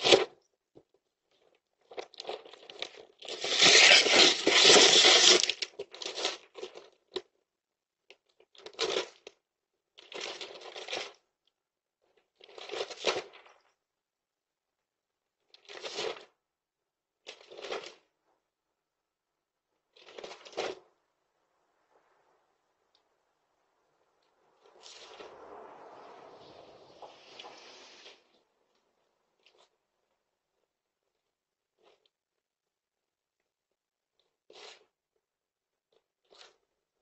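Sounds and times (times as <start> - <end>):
cardboard box scraping and crinkling: 3.2 - 6.5.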